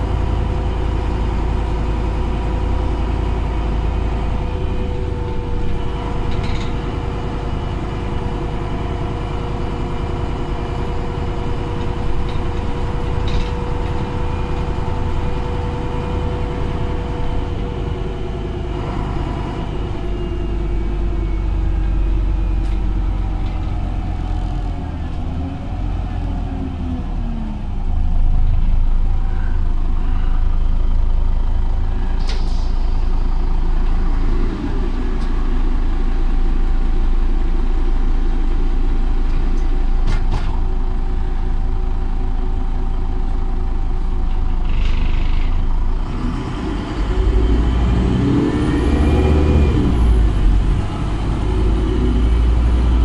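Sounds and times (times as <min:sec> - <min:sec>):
bus diesel engine drone: 0:00.0 - 0:53.0
short hiss of air: 0:32.2 - 0:33.0
sharp knocks from bus body: 0:40.0 - 0:40.6.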